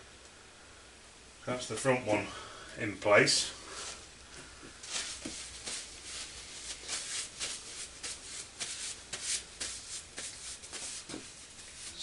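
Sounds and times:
paper towel rubbing hands: 4.8s - 12.0s.

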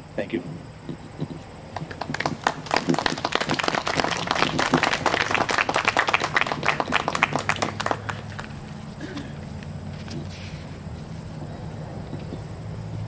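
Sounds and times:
audience applauding: 1.7s - 8.7s.

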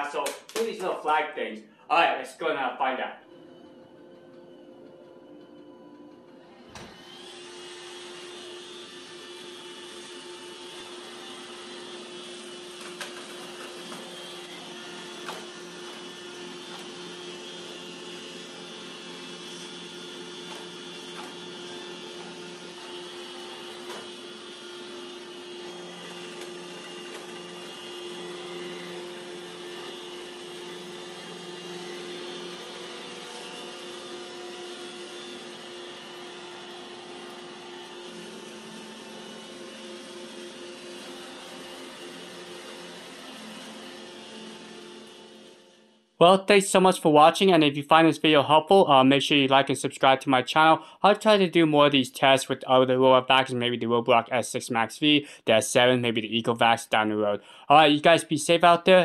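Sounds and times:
robot vacuum whirring: 3.3s - 45.9s.

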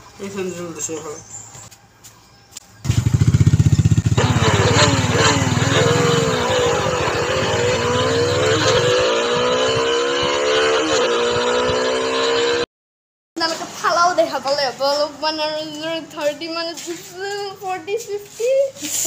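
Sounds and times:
motorcycle engine accelerating: 2.8s - 12.7s.

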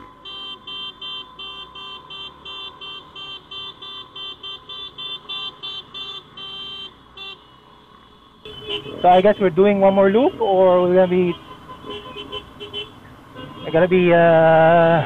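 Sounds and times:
motorcycle horn beeps: 0.2s - 7.6s, 8.4s - 9.3s.

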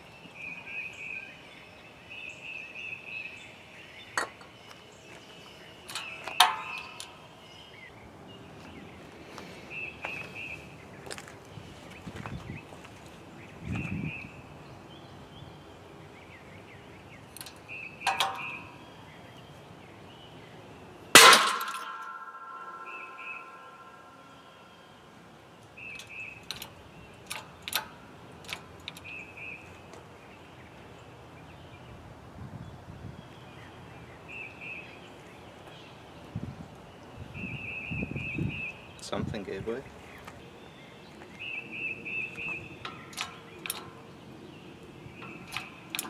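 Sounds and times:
light metallic clicks: 17.3s - 18.8s, 25.6s - 29.2s, 42.3s - 46.0s
loud metallic bang ringing: 21.2s - 24.5s.

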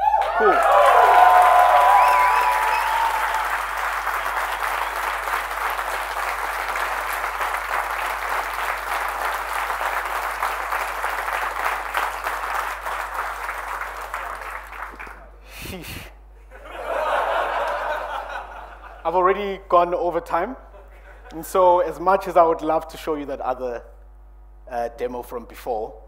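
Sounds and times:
audience applauding: 0.0s - 15.4s.

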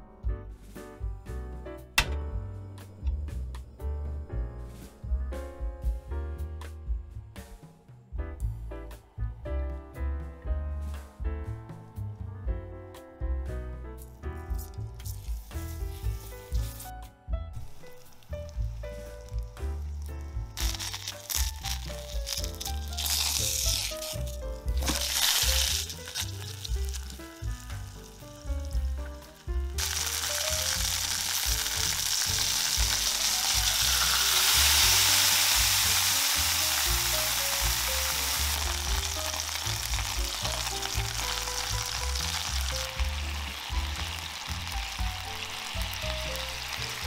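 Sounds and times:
background music: 0.0s - 47.0s
chicken frying in oil: 17.6s - 47.0s.

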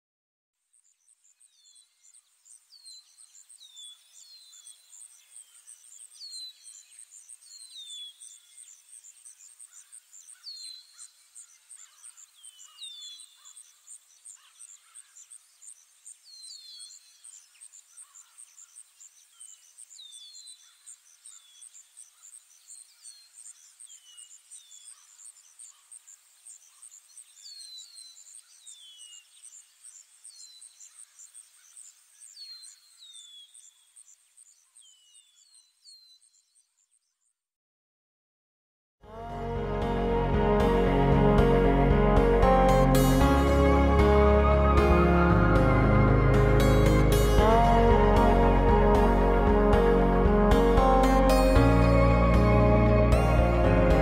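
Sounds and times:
insect chirping high and fast: 0.9s - 37.1s.

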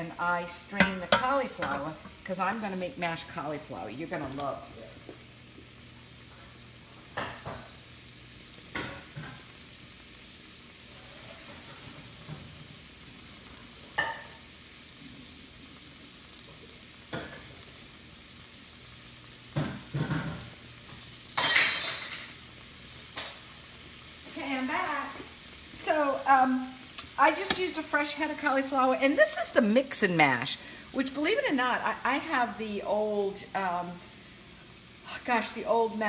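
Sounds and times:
shrimp sizzling in frying pan: 0.0s - 36.0s
kitchenware knocking and clanking: 19.6s - 20.5s.

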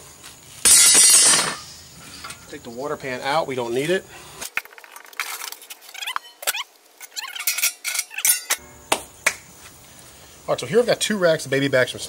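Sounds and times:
ringing metal rattle: 0.7s - 2.3s, 7.2s - 8.6s
metal parts clinking and rattling: 0.7s - 2.4s, 4.5s - 8.6s.

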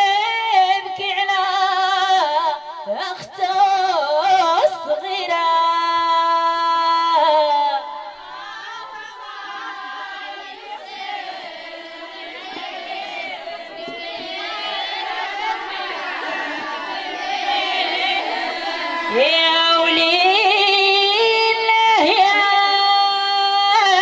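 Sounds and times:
woman singing unaccompanied: 0.0s - 10.2s, 18.0s - 24.0s.

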